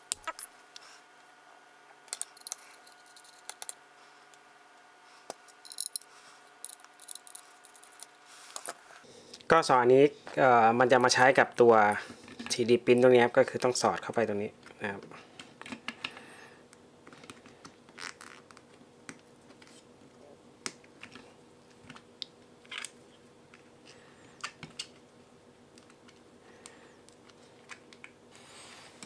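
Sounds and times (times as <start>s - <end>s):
faint hum: 0.0s - 29.0s.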